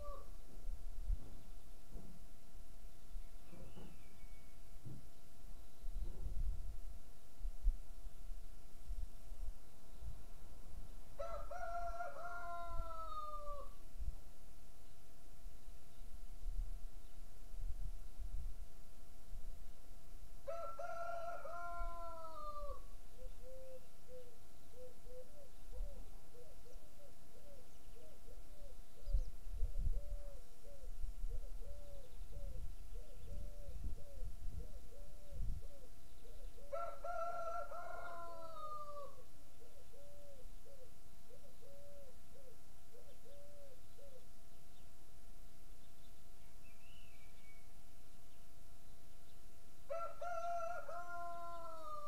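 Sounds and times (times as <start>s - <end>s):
rooster crowing: 11.2s - 13.8s, 20.4s - 22.9s, 36.7s - 39.2s, 49.9s - 52.0s.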